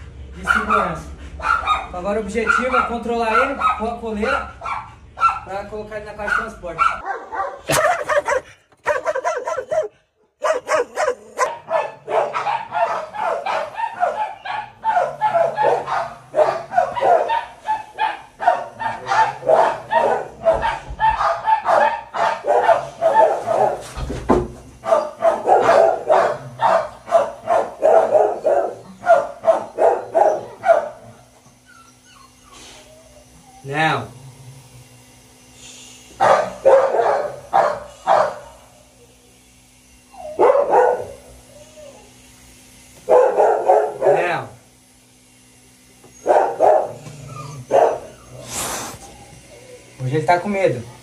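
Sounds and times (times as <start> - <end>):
dog barking: 0.4 - 5.6, 6.2 - 23.9, 24.8 - 31.1, 36.2 - 38.6, 40.2 - 41.2, 43.1 - 44.3, 46.2 - 48.2.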